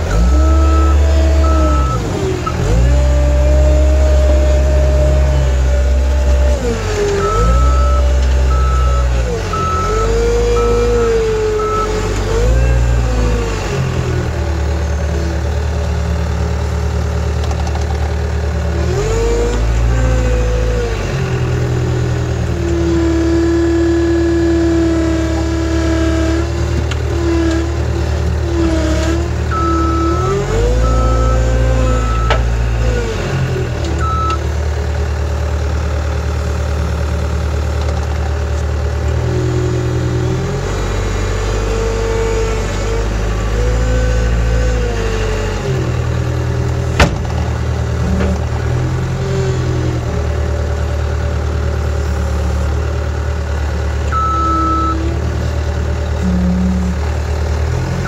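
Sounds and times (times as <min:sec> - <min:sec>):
diesel engine running: 0:00.0 - 0:58.0
reversing alarm beeping: 0:00.2 - 0:02.0, 0:07.2 - 0:11.9, 0:29.5 - 0:32.5, 0:34.0 - 0:34.4, 0:54.1 - 0:55.0.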